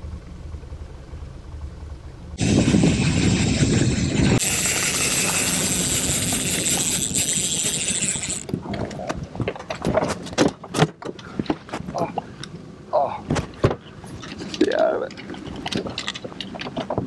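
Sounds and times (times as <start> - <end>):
outboard motor running: 0.0 - 8.9
wind and water noise: 1.6 - 17.0.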